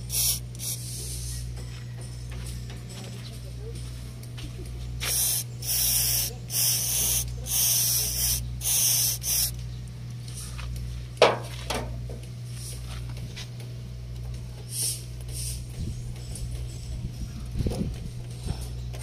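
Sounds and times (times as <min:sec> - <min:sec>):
aerosol spray hissing: 0:00.0 - 0:01.0, 0:05.0 - 0:09.5.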